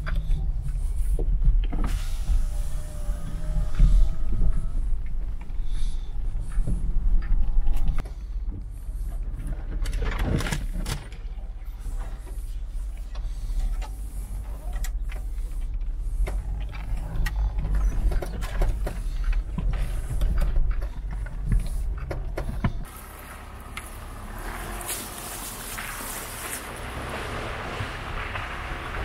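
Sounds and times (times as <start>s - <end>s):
vehicle rumbling in low gear: 0.0s - 29.0s
branches scraping car paintwork: 22.7s - 29.0s.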